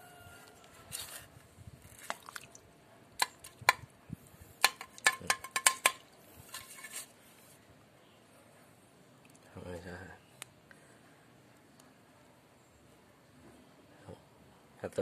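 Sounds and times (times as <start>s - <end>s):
mud squelching: 2.0s - 2.6s
metal hoe striking mud: 3.2s - 3.8s, 4.6s - 7.0s.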